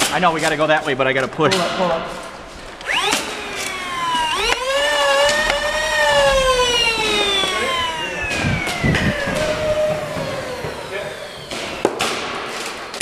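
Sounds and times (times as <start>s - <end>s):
sharp clicks: 2.8s - 12.2s
siren-like wailing tone: 4.0s - 11.8s.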